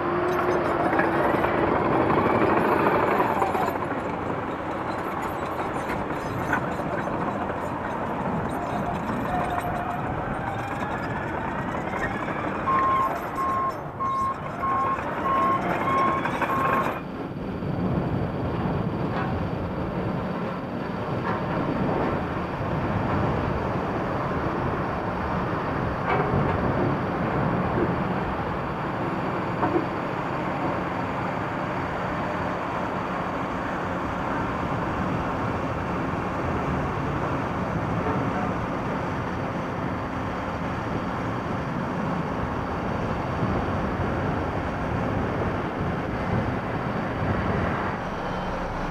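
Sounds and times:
reversing beeper beeps: 11.7s - 17.0s.

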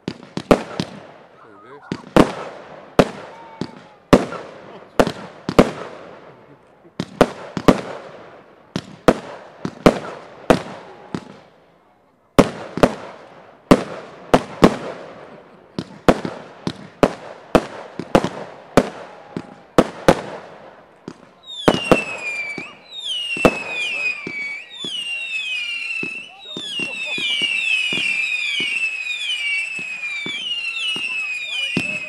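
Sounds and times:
fireworks bangs: 0.0s - 11.7s, 12.3s - 32.0s
fireworks whistles falling in pitch: 21.1s - 32.0s.

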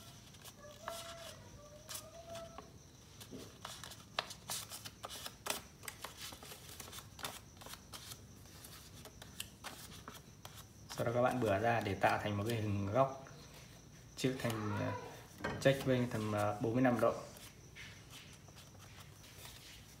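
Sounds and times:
paper being folded and creased: 0.0s - 12.7s.

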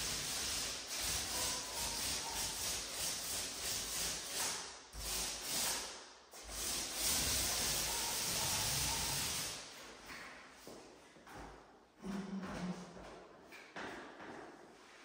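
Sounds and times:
paint rubbing on wall: 0.0s - 10.1s.

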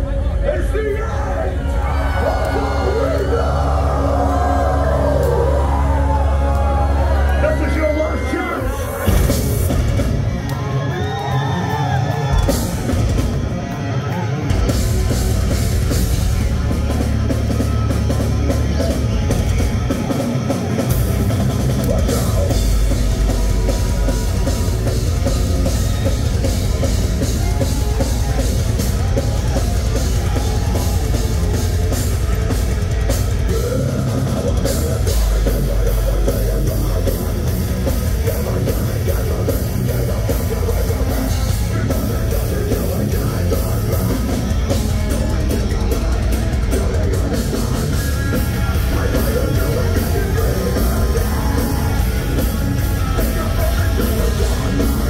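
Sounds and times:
distorted guitars: 0.0s - 55.0s
metal band playing live: 0.0s - 55.0s
pounding drums: 8.6s - 10.5s, 14.5s - 55.0s.

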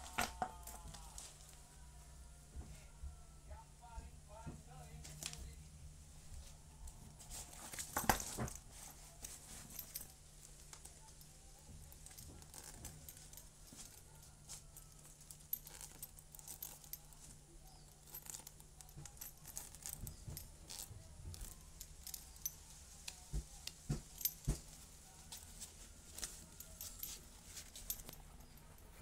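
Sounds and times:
zipper pulls clicking and jingling: 11.9s - 22.6s, 25.4s - 29.0s.

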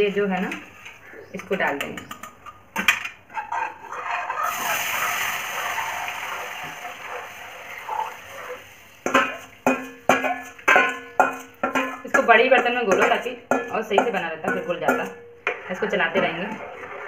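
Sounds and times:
batter hissing in hot pan: 4.4s - 9.6s
spoon knocking metal bowl: 9.1s - 15.2s.

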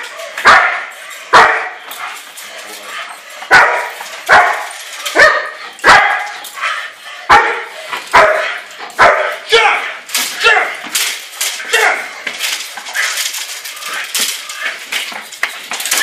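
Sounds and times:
dog barking: 0.0s - 1.8s, 3.4s - 6.4s, 7.3s - 9.8s.

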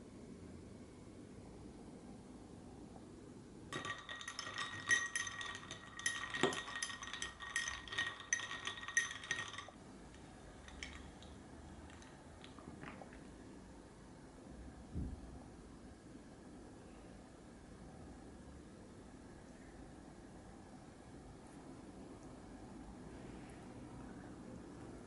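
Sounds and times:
ice cubes clinking in a glass: 3.7s - 9.8s, 10.7s - 11.2s.

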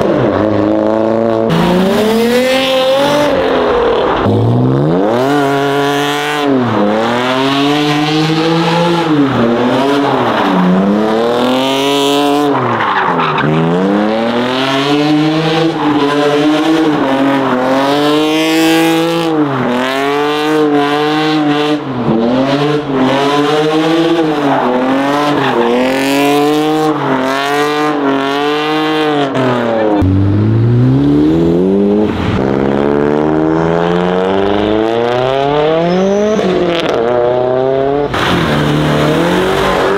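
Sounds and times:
car engine revving hard: 0.0s - 12.8s, 13.4s - 39.9s
deeper engine accelerating: 30.0s - 36.4s.

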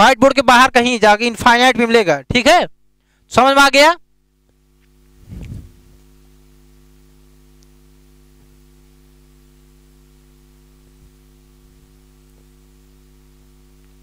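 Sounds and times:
low electrical mains hum: 0.0s - 14.0s
faint hiss: 5.1s - 7.0s.

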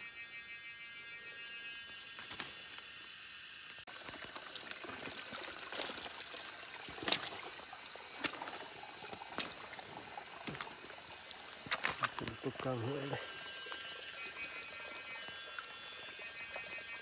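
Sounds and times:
stream trickling over stones: 2.0s - 17.0s
sharp splashes: 3.9s - 13.4s.

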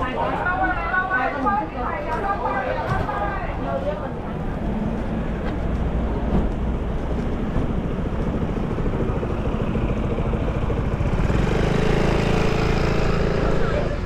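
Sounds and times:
vehicle engine running: 6.5s - 14.0s.

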